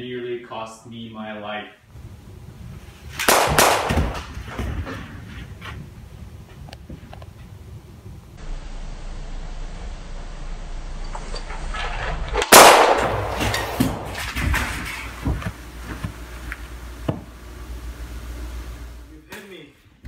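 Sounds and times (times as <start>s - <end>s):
low steady hum: 1.8s - 20.0s
loud pistol gunshot: 3.2s - 4.3s, 12.5s - 14.4s.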